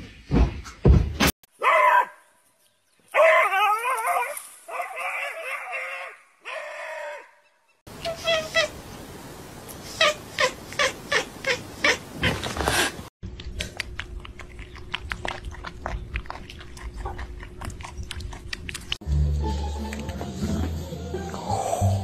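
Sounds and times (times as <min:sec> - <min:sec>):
cat crunching dry kibble: 0:13.5 - 0:19.0.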